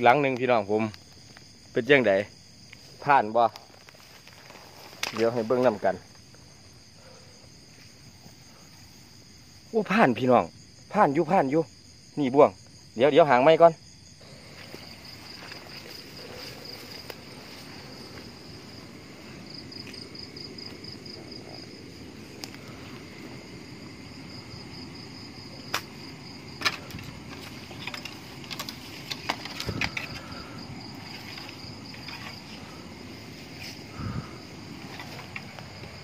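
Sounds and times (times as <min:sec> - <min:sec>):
crickets and insects trilling: 0:00.0 - 0:36.0
footsteps rustling through grass: 0:03.6 - 0:06.6, 0:14.2 - 0:22.4
sharp cracks and clicks: 0:25.7 - 0:25.9.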